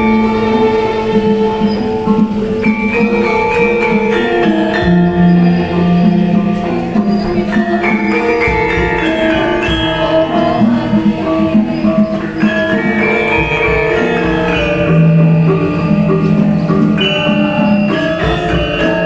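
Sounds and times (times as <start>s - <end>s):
gongs: 0.0s - 19.0s
hand drum: 0.0s - 19.0s
metallophones struck with mallets: 0.0s - 19.0s
people singing through microphones: 4.6s - 19.0s.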